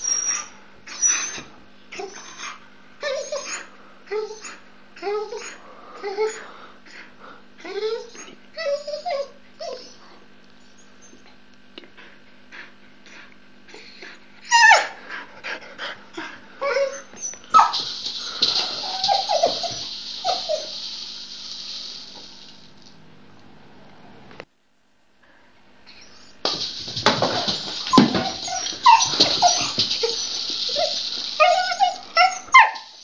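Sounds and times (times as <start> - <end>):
dog whining and yipping: 0.0 - 6.4, 7.6 - 10.0, 14.4 - 15.0, 16.6 - 20.9, 27.2 - 33.0
steady high hiss: 17.0 - 23.0, 26.0 - 33.0.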